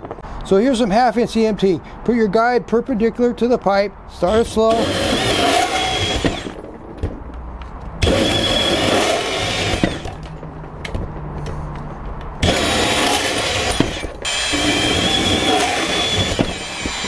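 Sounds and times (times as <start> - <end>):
band saw cutting steel conduit: 4.2 - 6.6, 8.0 - 10.2, 12.4 - 17.0
band saw motor hum: 4.3 - 6.6, 8.0 - 10.2, 12.4 - 17.0.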